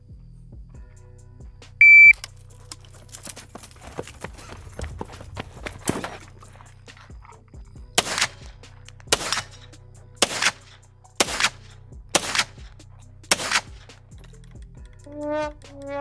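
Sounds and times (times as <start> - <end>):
carbine gunshots with echo: 8.0 - 14.3.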